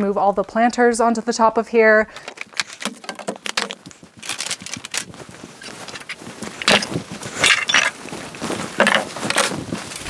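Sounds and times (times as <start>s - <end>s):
planters clinking and knocking: 2.1s - 8.0s, 8.7s - 10.0s.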